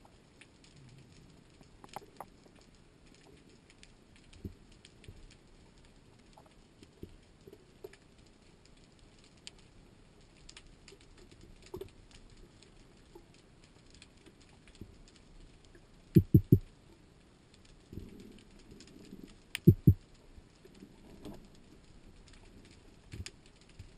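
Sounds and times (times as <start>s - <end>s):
faint underwater clicks and crackles: 0.0s - 23.9s
low hiss: 14.5s - 23.9s
low thumps: 16.2s - 16.6s, 19.6s - 20.0s.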